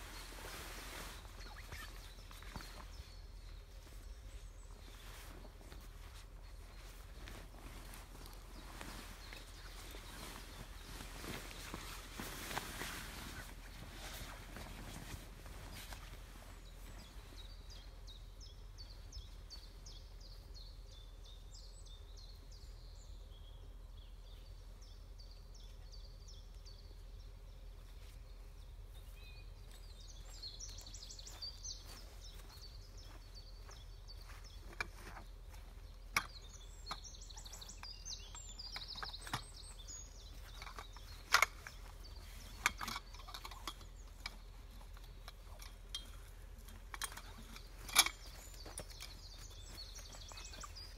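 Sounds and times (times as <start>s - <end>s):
small birds singing: 0.0s - 50.9s
knocks and clicks from tent handling: 31.9s - 50.9s.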